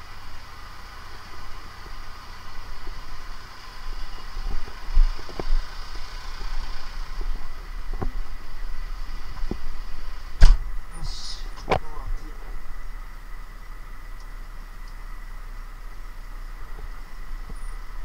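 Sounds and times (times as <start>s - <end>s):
steady low hum: 0.0s - 18.0s
knocks and clunks in tractor cab: 10.4s - 10.7s
loud thump: 10.4s - 10.7s.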